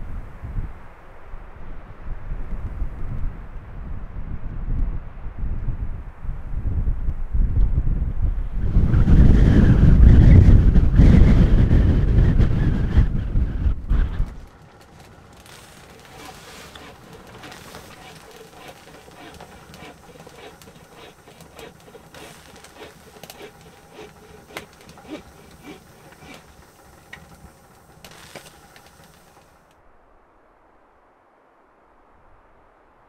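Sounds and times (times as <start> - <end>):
firewood crackling in a stove: 12.6 - 29.7.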